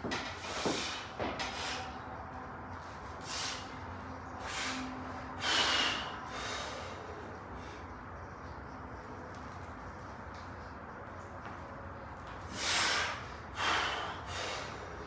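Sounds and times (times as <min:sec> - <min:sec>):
man breathing forcefully: 0:00.4 - 0:02.0, 0:03.2 - 0:07.9, 0:12.5 - 0:15.0.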